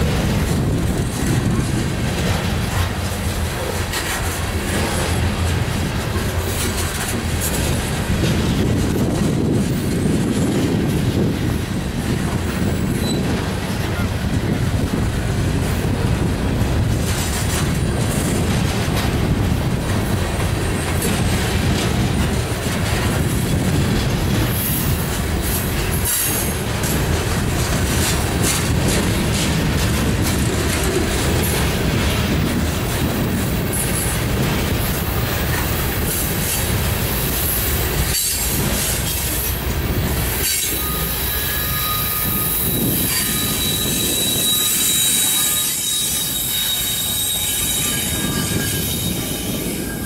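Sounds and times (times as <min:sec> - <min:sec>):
clacking over rail joints: 0:00.0 - 0:50.0
train wheels rumbling on rails: 0:00.0 - 0:50.0
high metallic wheel squeal: 0:12.9 - 0:13.3, 0:40.4 - 0:50.0.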